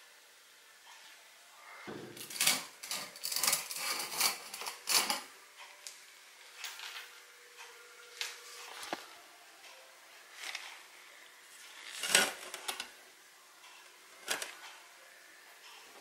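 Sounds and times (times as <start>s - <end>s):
metal scrapes and clanks: 2.2s - 5.3s.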